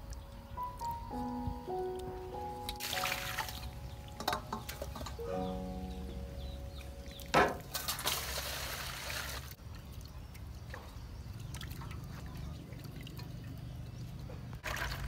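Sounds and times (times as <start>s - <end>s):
water trickling into metal basin: 0.0s - 15.0s
water splashing: 2.5s - 5.6s, 6.4s - 15.0s.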